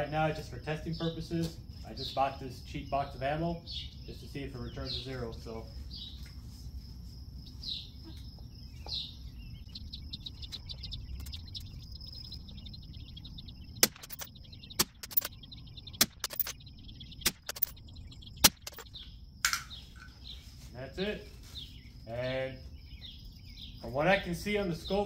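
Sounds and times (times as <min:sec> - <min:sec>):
birds chirping: 0:00.0 - 0:25.0
suppressed rifle shots: 0:13.8 - 0:15.4, 0:18.4 - 0:18.8.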